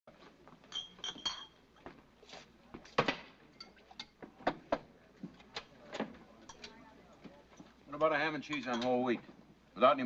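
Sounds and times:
glassware and dishes clinking: 0:00.6 - 0:02.0, 0:03.0 - 0:04.6, 0:06.0 - 0:06.8, 0:07.6 - 0:09.3.

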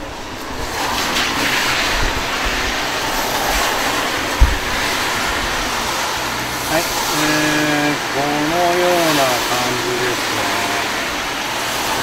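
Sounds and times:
steady rushing noise: 0:00.0 - 0:12.0
low thump: 0:04.3 - 0:05.4.

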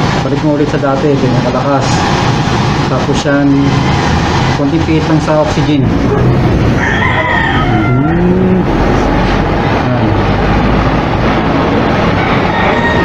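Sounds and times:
torch flame rushing: 0:01.2 - 0:05.0.

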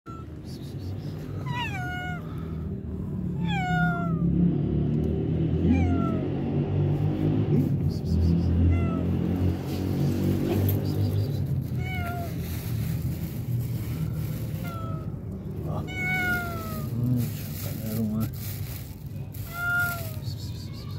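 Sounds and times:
cat meowing: 0:00.0 - 0:00.4, 0:01.3 - 0:02.7, 0:03.3 - 0:04.4, 0:05.6 - 0:06.3, 0:08.5 - 0:09.6, 0:11.6 - 0:12.5, 0:14.4 - 0:17.0, 0:19.4 - 0:20.9.

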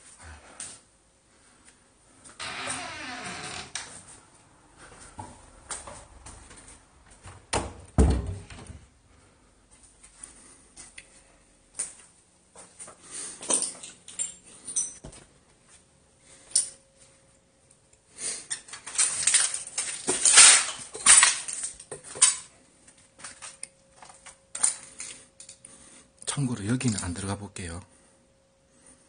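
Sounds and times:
footsteps crunching on broken glass: 0:18.5 - 0:25.1.

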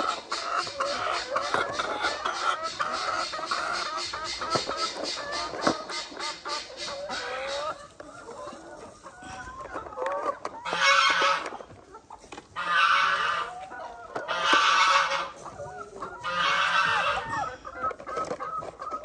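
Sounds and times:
chicken harsh squawks: 0:00.0 - 0:08.0, 0:16.2 - 0:17.6
chickens clucking: 0:00.0 - 0:19.0.

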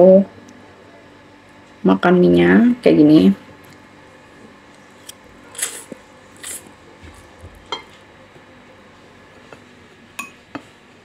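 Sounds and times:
noodles being slurped: 0:05.5 - 0:06.7.

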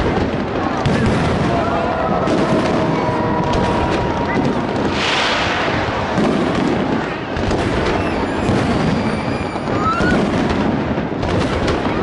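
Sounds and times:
fireworks bangs and crackling: 0:00.0 - 0:12.0
firework rising whistle: 0:03.5 - 0:06.2, 0:06.9 - 0:10.3
firework hissing burst: 0:04.7 - 0:10.1.

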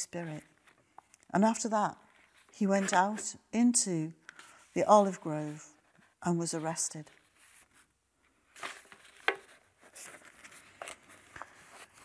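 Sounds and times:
paper rustling: 0:07.0 - 0:07.9, 0:08.5 - 0:12.0.

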